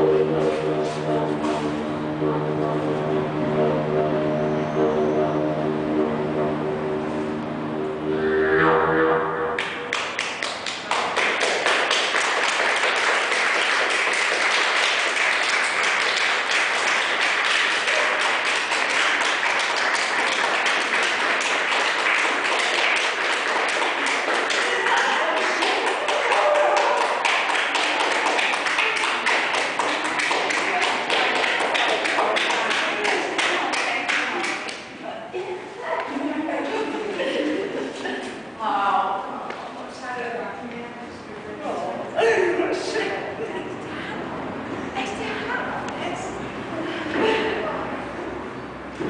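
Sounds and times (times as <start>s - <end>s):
crowd clapping: 9.6s - 35.0s.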